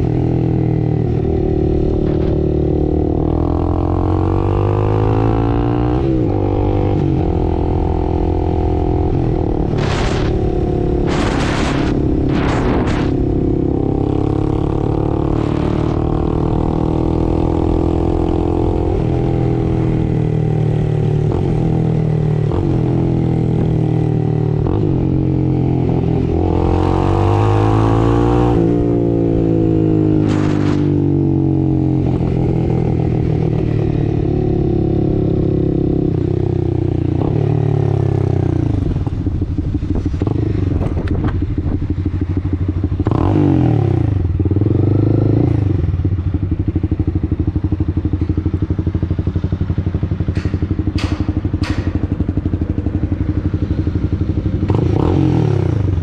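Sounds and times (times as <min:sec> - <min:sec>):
motorcycle engine revving: 0:00.0 - 0:56.0
rush of noise: 0:09.0 - 0:17.2, 0:30.1 - 0:31.4.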